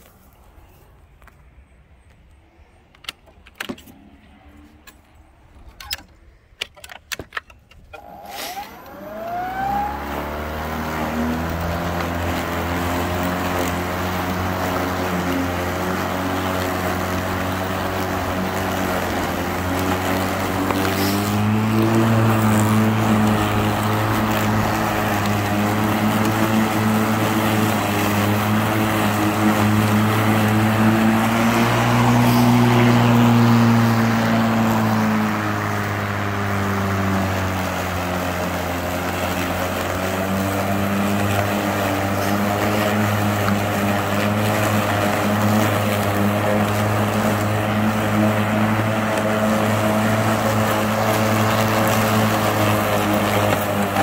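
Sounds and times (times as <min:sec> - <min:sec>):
electric lawn mower whine: 0:02.9 - 0:54.0.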